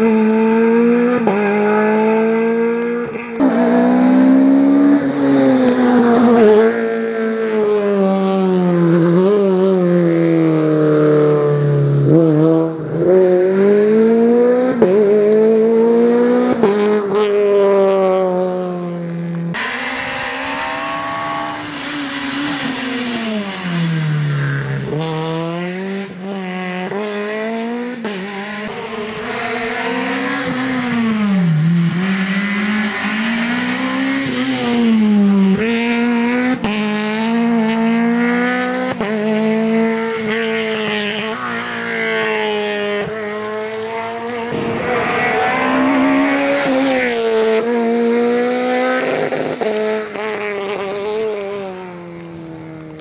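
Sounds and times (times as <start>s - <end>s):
rally car engine revving: 0.0s - 53.0s
tyre hiss on wet road: 44.5s - 50.6s.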